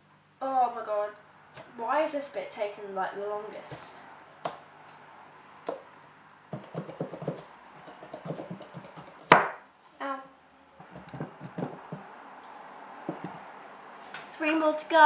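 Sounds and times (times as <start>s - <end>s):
sharp knock: 8.1s - 9.6s.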